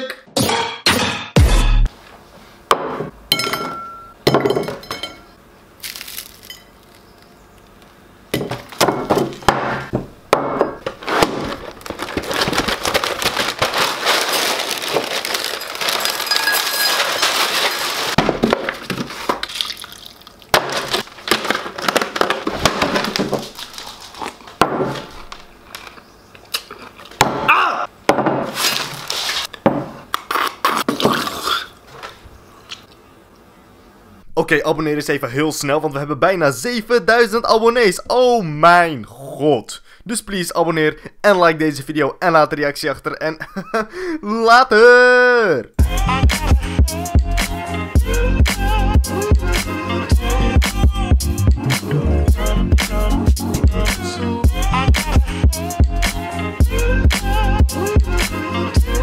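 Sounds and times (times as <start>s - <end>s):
dishes clinking: 3.3s - 5.4s
cereal pouring into bowl: 5.8s - 6.5s, 12.1s - 18.2s
cereal scattering on wooden table: 5.8s - 6.5s.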